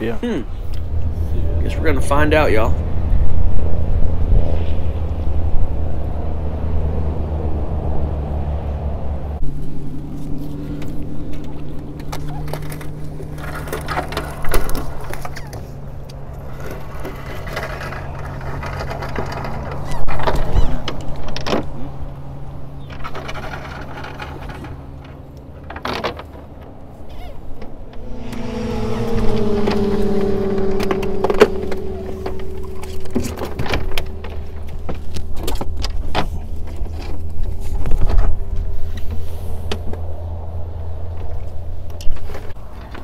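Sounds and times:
boat motor humming: 5.1s - 37.6s
higher-pitched tone: 27.9s - 34.9s.

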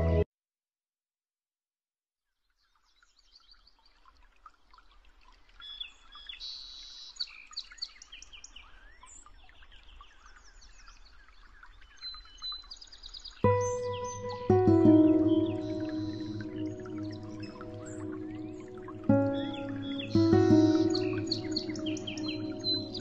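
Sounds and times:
songbirds chirping and trilling: 5.5s - 23.0s.

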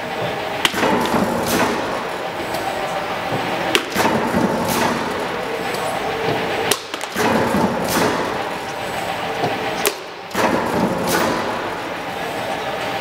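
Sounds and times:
steady machine noise: 0.0s - 13.0s.

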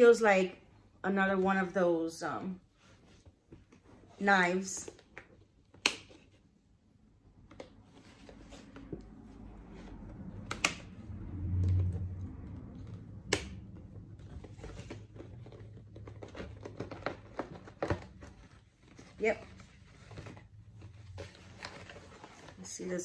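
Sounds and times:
packaging rustling: 13.8s - 22.7s.

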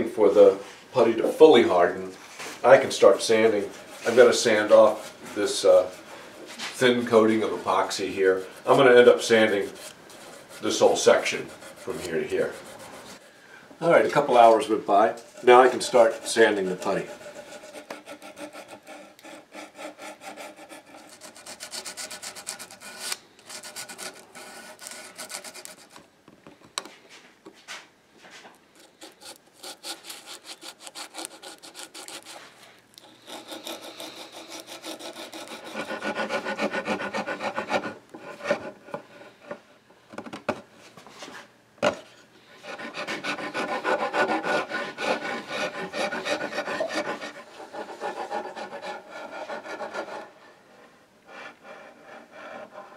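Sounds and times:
sanding rubbing strokes: 2.7s - 13.2s, 15.4s - 26.0s, 28.8s - 38.8s, 42.6s - 50.3s
file scraping putty: 15.3s - 26.0s, 28.8s - 39.4s, 42.6s - 50.3s.

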